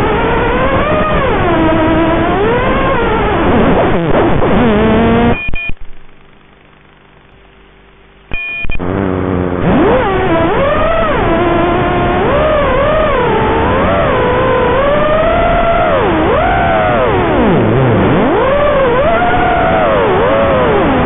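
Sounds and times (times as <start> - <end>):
faint steady hum: 0.0 - 21.0
short electronic beep: 5.2 - 5.8, 8.3 - 8.8
quadcopter motors whining: 9.6 - 17.4, 18.1 - 20.8.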